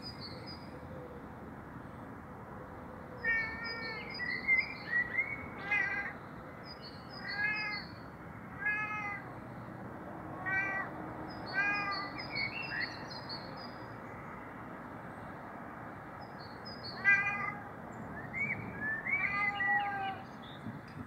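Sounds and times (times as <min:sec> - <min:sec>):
cat meowing: 0:05.6 - 0:06.1, 0:07.2 - 0:07.8, 0:08.6 - 0:09.3, 0:10.4 - 0:10.9, 0:11.5 - 0:12.1, 0:17.0 - 0:17.7, 0:19.0 - 0:20.3.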